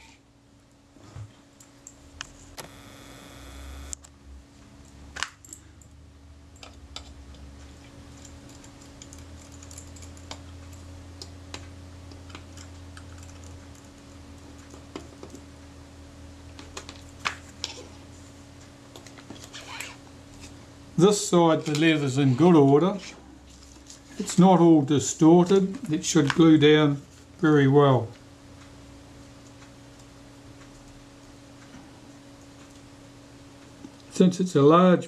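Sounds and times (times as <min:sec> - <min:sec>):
low hum: 0:02.1 - 0:17.0.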